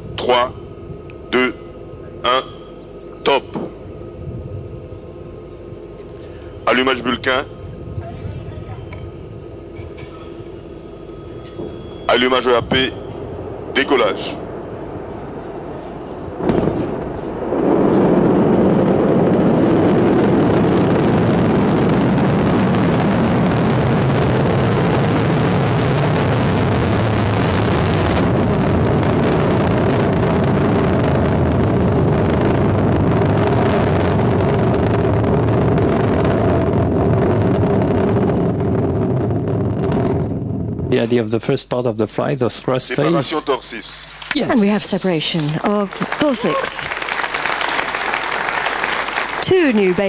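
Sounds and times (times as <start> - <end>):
loud rocket engine roar: 0.0 - 50.0.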